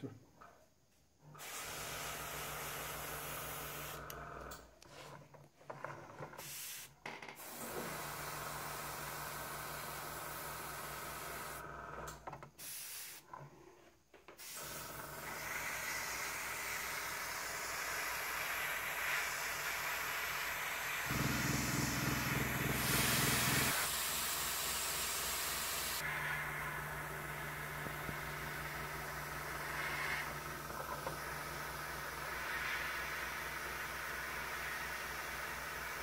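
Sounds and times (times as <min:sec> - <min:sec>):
airbrush hissing: 0:12.6 - 0:13.2, 0:14.4 - 0:26.4
compressor pulsing hum: 0:21.0 - 0:23.9, 0:25.8 - 0:32.4.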